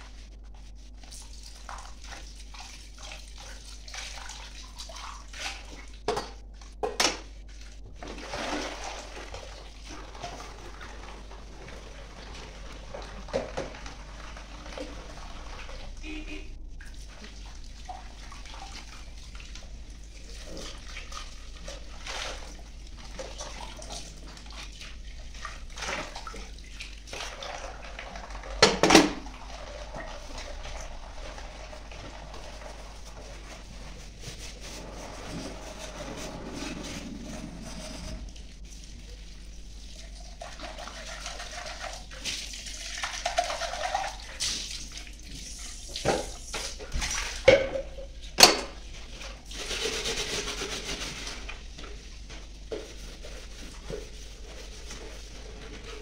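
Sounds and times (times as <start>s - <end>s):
tap water running into sink: 8.0s - 16.0s.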